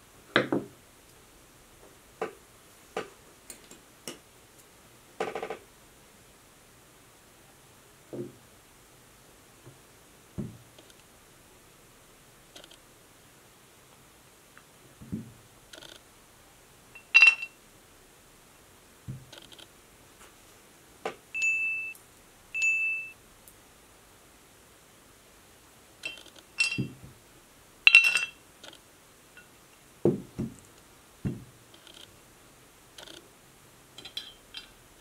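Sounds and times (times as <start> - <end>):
glass ringing tone: 17.0 - 17.6, 21.4 - 22.0, 22.6 - 23.2, 26.0 - 27.0
sharp glass clink: 17.0 - 17.6, 26.0 - 27.0, 27.9 - 28.4
taps and knocks on table: 31.3 - 31.5.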